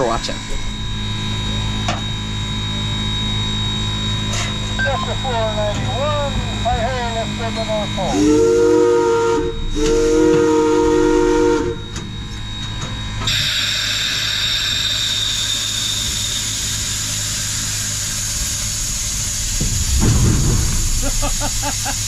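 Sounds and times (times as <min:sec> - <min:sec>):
steam whistle blast: 0:08.1 - 0:12.1, 0:13.3 - 0:17.9
loud steam hiss: 0:13.3 - 0:22.0.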